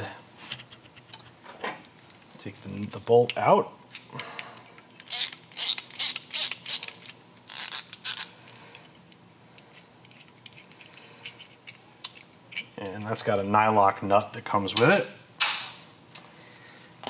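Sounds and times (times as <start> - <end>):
ratchet rasping: 5.0 - 6.9, 7.5 - 8.3.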